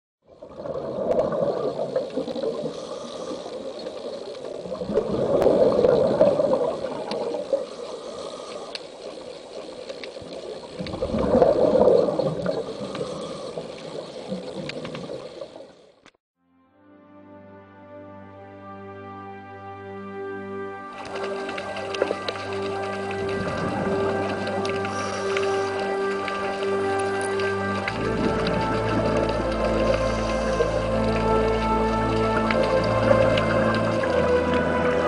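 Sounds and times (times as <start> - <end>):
exhaled bubbles gushing: 0.2 - 3.3, 4.0 - 8.3, 9.1 - 15.9, 21.0 - 35.0
scuba diver breathing underwater: 0.6 - 9.3, 10.8 - 15.4, 22.7 - 34.5.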